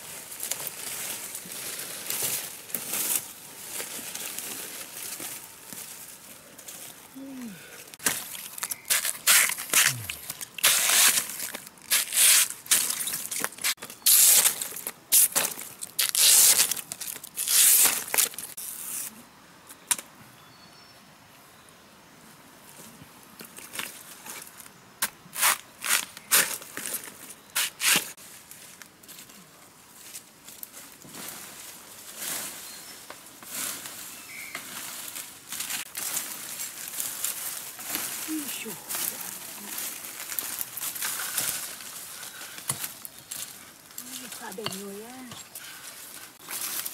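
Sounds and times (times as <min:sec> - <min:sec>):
dry leaves rustling and crackling: 0:00.0 - 0:18.8, 0:25.8 - 0:46.9
knife splitting bamboo: 0:08.0 - 0:13.0
bamboo sharp crack: 0:08.0 - 0:19.2.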